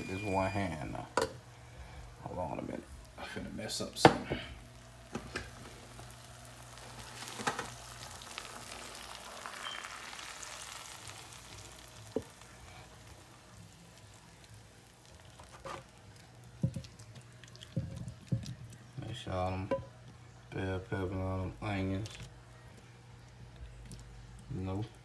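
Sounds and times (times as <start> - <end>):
sauce sizzling in a pan: 2.9 - 20.0.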